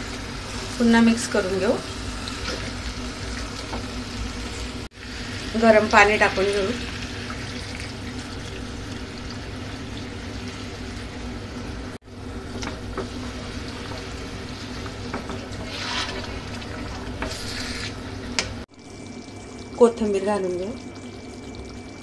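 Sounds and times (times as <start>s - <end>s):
hot water pouring into a pan: 0.0s - 11.3s, 13.0s - 18.2s
wooden spatula scraping a pan: 14.8s - 18.0s.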